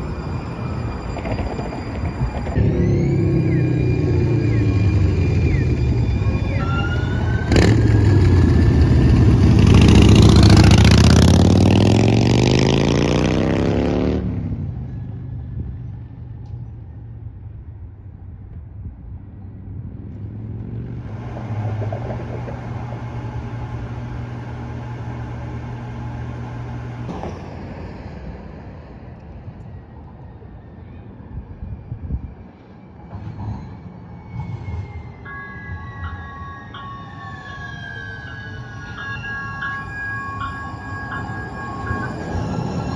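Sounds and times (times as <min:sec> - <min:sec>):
street noise: 0:00.0 - 0:42.9
vehicle accelerating: 0:02.4 - 0:15.7, 0:19.5 - 0:27.3.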